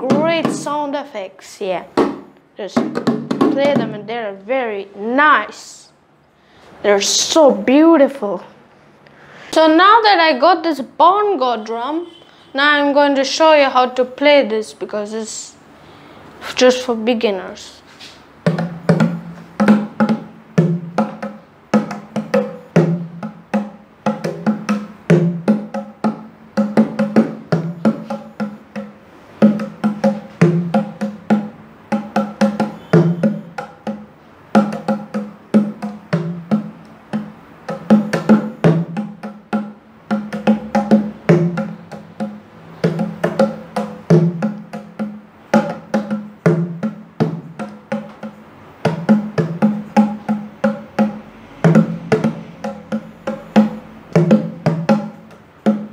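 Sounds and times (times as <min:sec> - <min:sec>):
bongo drums played by hand: 0:00.0 - 0:00.9, 0:01.9 - 0:04.4, 0:17.8 - 0:55.9.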